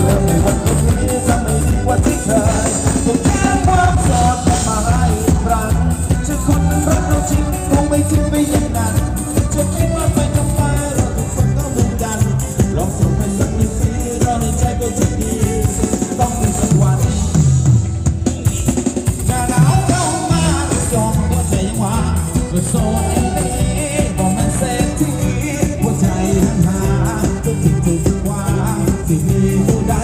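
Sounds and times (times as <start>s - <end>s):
person singing: 0.0s - 17.6s, 18.3s - 30.0s
drum kit beat: 0.0s - 30.0s
live band dance music: 0.0s - 30.0s.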